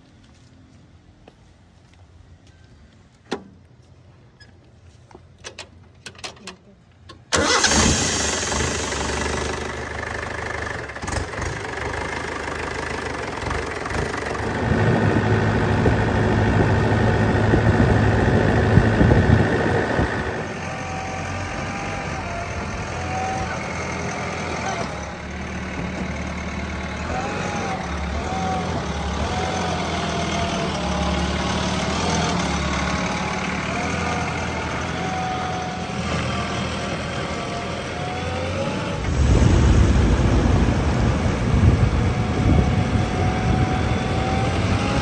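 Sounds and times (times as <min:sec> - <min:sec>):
tractor diesel engine running: 0:05.8 - 0:45.0
backhoe loader engine idling: 0:06.9 - 0:38.3.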